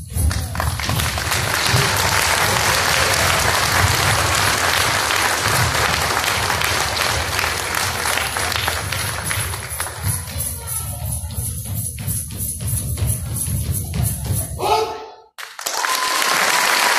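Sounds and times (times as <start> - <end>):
audience applauding: 0.2 - 10.2, 15.4 - 16.9.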